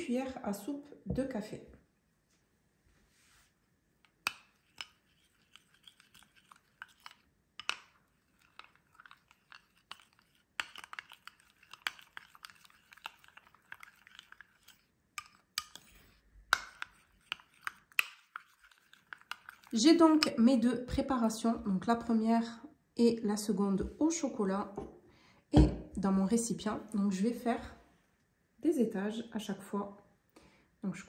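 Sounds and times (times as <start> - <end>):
spoon clinking and scraping bowl: 4.1 - 20.4.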